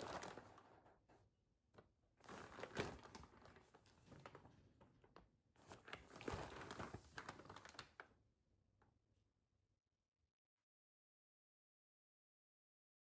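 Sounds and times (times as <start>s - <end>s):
paper sack crinkling: 0.0s - 0.8s, 2.2s - 4.6s, 5.7s - 8.0s.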